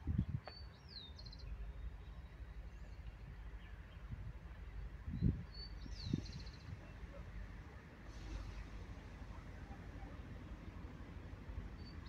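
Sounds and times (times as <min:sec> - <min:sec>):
wind rumble on microphone: 0:00.0 - 0:00.8, 0:03.2 - 0:07.1
songbird singing: 0:00.4 - 0:04.1, 0:05.1 - 0:07.2, 0:11.6 - 0:12.0.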